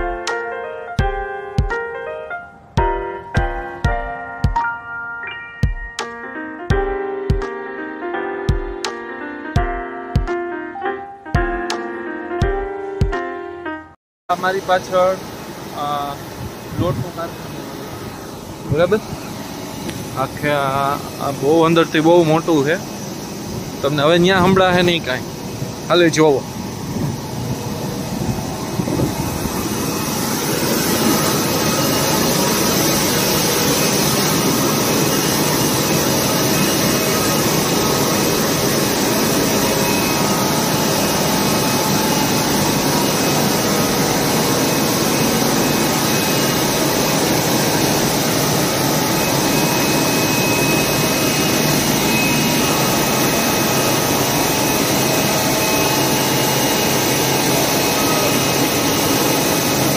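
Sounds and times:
mill machinery droning: 14.3 - 59.9.

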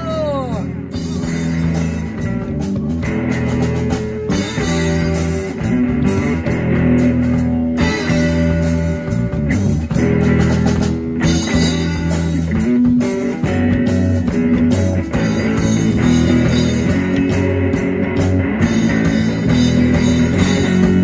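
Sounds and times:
bass guitar: 0.0 - 21.0
drum kit: 0.0 - 21.0
electric guitar: 0.0 - 21.0.

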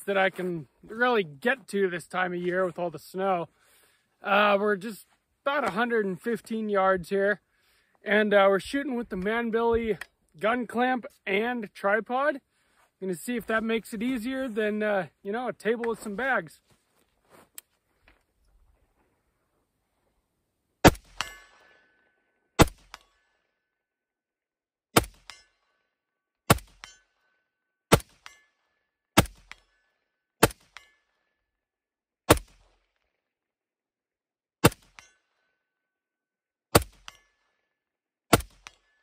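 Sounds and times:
rifle shots: 20.8 - 21.6, 22.6 - 23.0, 27.9 - 28.3, 29.2 - 29.6, 30.4 - 30.8, 32.3 - 32.7, 36.7 - 37.2, 38.3 - 38.8.

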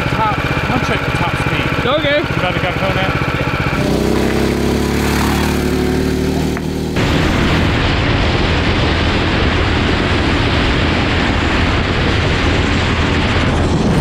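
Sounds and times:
small engine at full throttle: 0.0 - 14.0
wind buffeting microphone: 3.1 - 14.0.

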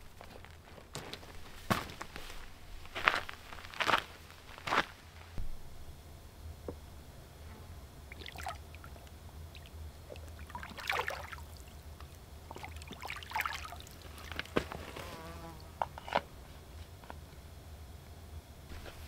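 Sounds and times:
hands splashing in water: 10.4 - 11.4.

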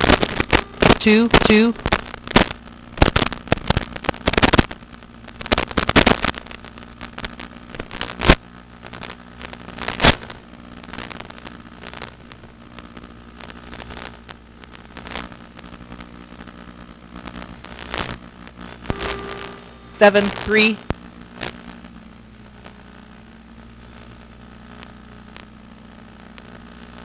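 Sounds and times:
sharp clicks and pops: 0.0 - 1.9.

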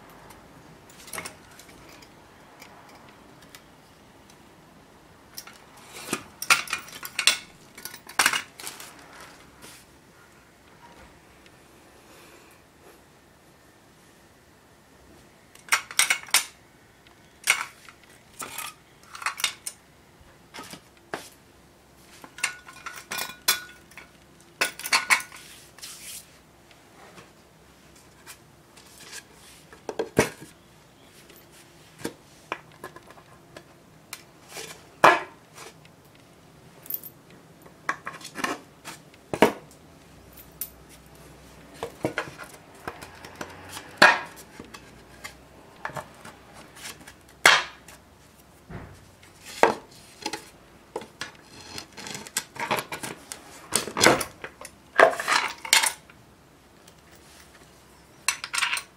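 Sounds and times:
metal parts clanking on concrete: 6.4 - 9.3, 15.7 - 16.6, 18.4 - 19.8, 22.2 - 25.4, 51.1 - 56.1, 58.0 - 58.9.

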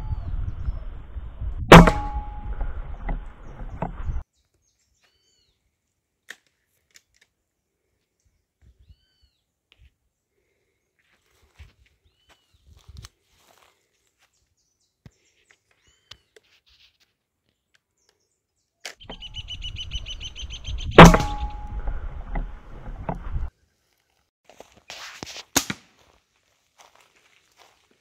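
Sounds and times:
low rumble: 0.0 - 4.2
air rifle shot: 1.7 - 3.2, 20.8 - 22.8.

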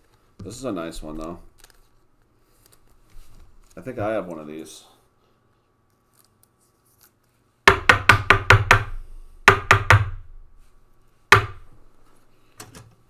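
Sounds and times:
rapid knocking on hard surface: 7.7 - 8.9, 9.5 - 10.2, 11.3 - 11.6.

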